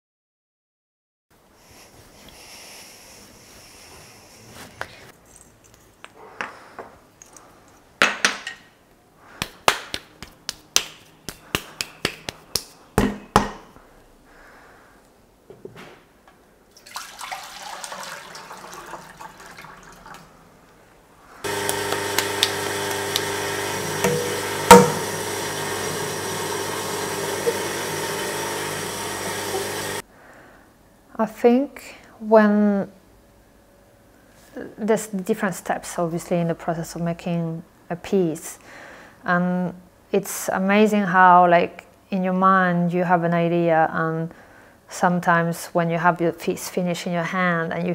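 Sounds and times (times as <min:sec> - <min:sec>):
hands slapping wet clay: 0:09.4 - 0:12.7
water poured from bucket: 0:16.8 - 0:20.3
pottery wheel humming: 0:21.4 - 0:30.0.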